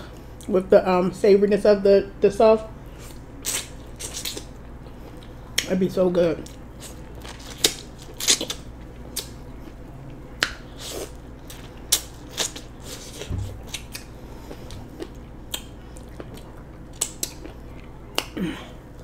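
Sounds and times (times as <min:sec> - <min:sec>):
chewing corn crunches: 0:06.4 - 0:09.8.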